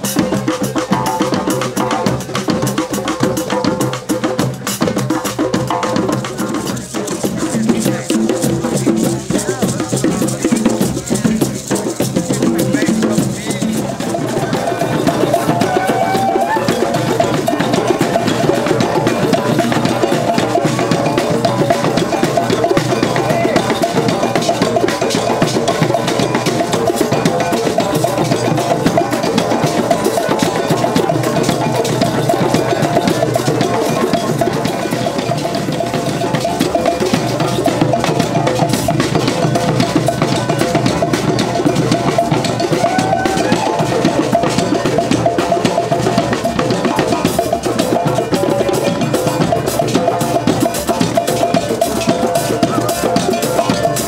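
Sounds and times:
hand drums playing: 0.0 - 54.0.

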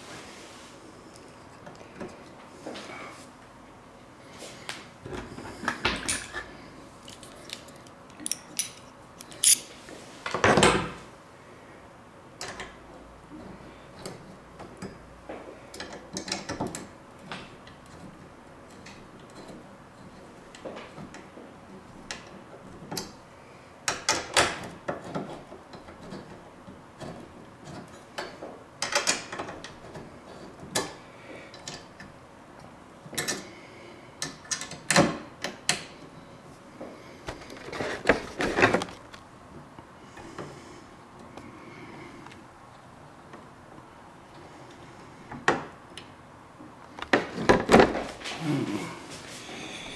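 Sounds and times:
metal tool clicks and clatter: 7.5 - 9.7.

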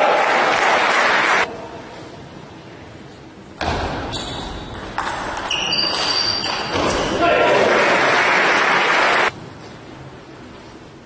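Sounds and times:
crowd noise hiss: 7.1 - 10.2.

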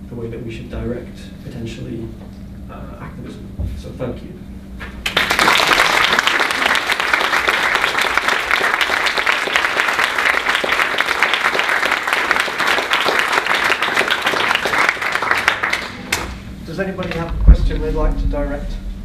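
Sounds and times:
audience applauding: 5.0 - 16.3.

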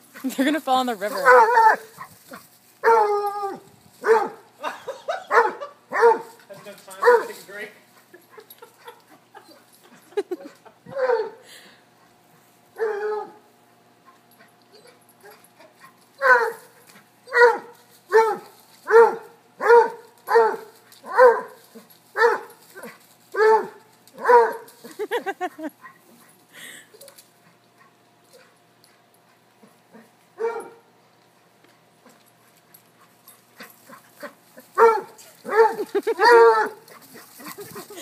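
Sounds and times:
dog barking: 1.2 - 1.8, 4.0 - 4.4, 5.3 - 6.2, 7.0 - 7.4, 16.2 - 16.6, 17.3 - 21.5, 22.2 - 22.5, 23.4 - 24.7, 30.4 - 30.8, 34.8 - 36.8.

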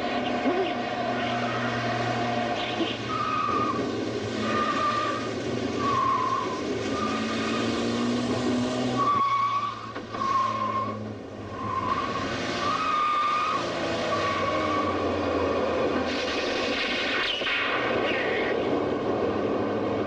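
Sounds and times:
car engine running hard: 0.0 - 20.0
tyre squeals: 2.8 - 3.8, 8.9 - 11.0.

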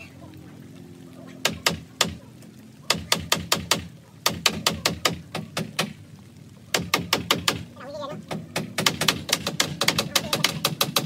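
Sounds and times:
hammer driving nails into wood: 8.5 - 11.0.

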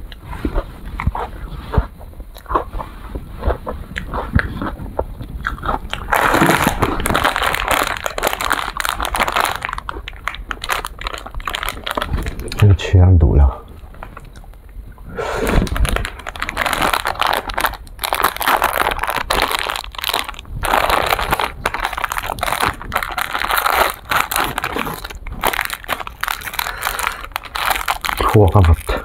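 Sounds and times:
plastic wrapper crinkling and tearing: 5.5 - 12.7, 13.8 - 14.4, 15.4 - 29.0.

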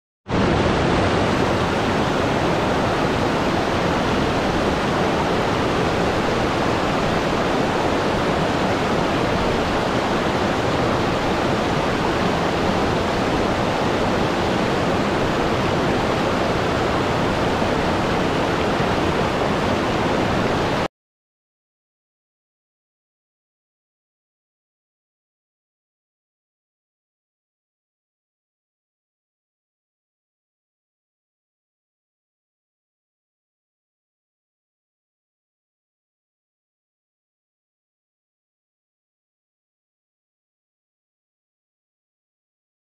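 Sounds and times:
waterfall cascading over rocks: 0.3 - 20.9.

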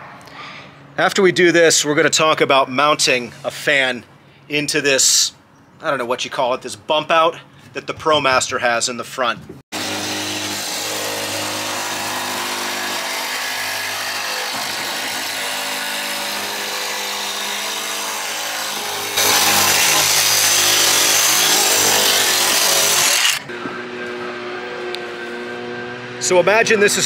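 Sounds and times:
power tool whining: 9.8 - 26.2.

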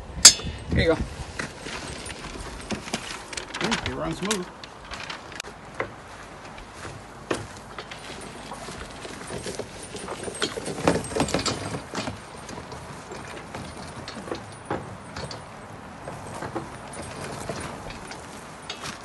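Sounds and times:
cart rattling over rough ground: 0.0 - 19.0.

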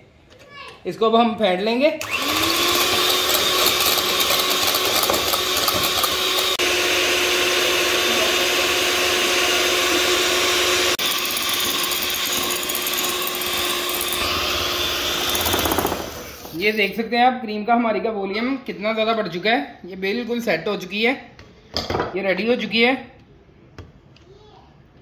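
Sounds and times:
electric hand mixer whipping cream: 2.0 - 16.7.

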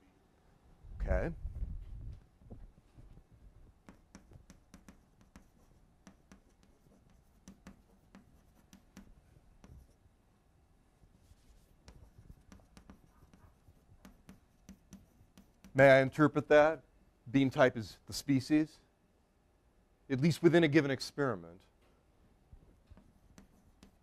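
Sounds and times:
chalk on a blackboard: 3.8 - 10.0, 11.2 - 15.9, 22.9 - 24.0
pens writing on paper: 3.8 - 10.0, 11.4 - 15.8, 22.9 - 24.0.

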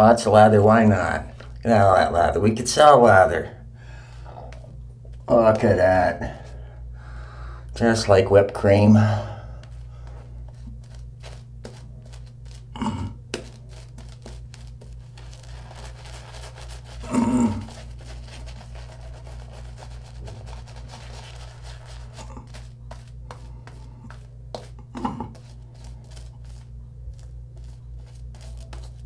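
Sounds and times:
steady low hum: 0.0 - 29.0
shaving brush scrubbing lather: 10.5 - 12.7, 13.3 - 29.0.

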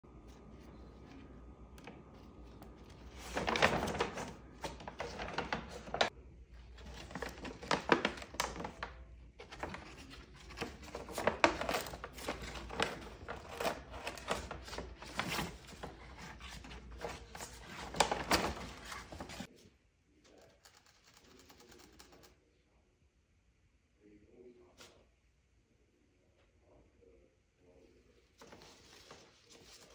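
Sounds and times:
paper bag crinkling and tearing: 2.4 - 19.5.

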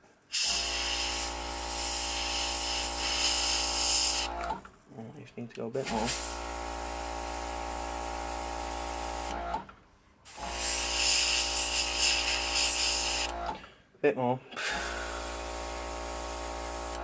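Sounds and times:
airbrush spraying paint: 0.3 - 4.3, 5.9 - 6.4, 10.3 - 13.3
air compressor humming: 0.3 - 4.7, 5.8 - 9.7, 10.3 - 13.7, 14.6 - 17.0.

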